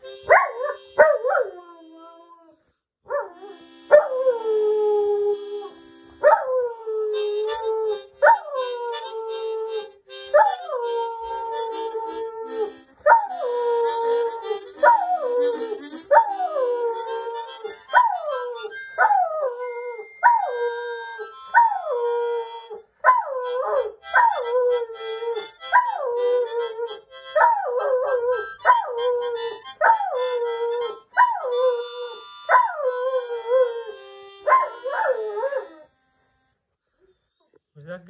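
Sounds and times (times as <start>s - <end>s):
dog howling: 10.4s - 22.4s, 23.1s - 35.9s.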